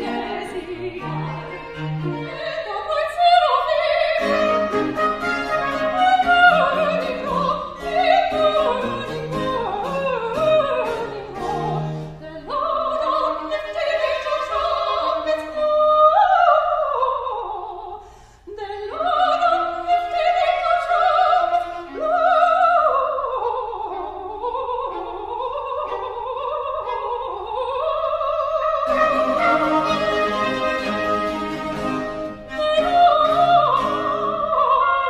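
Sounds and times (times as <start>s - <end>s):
strings and harpsichord ensemble: 0.0s - 12.5s, 28.8s - 35.0s
soprano singing operatic aria: 0.0s - 35.0s.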